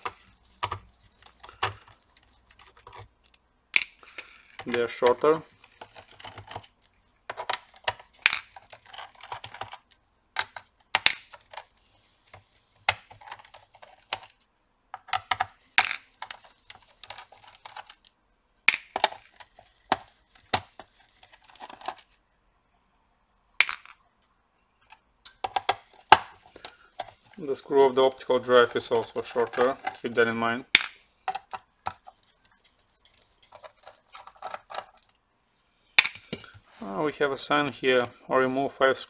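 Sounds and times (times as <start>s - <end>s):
handling rustle: 0.0s - 3.3s, 4.6s - 10.7s, 19.0s - 22.2s, 25.6s - 30.5s, 31.3s - 35.2s.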